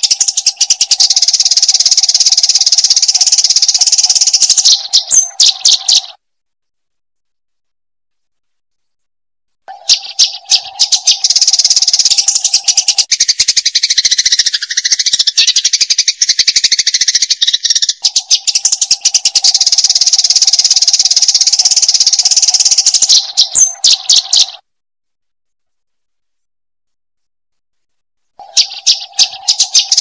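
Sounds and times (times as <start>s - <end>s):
sparrow chirping: 0.0s - 6.2s, 9.7s - 24.6s, 28.2s - 30.0s.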